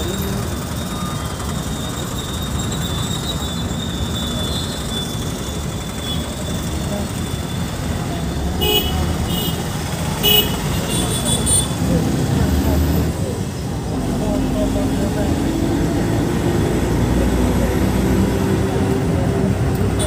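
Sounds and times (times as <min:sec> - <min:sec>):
bus engine and road rumble: 0:00.0 - 0:20.0
bus horn toots: 0:08.6 - 0:11.8.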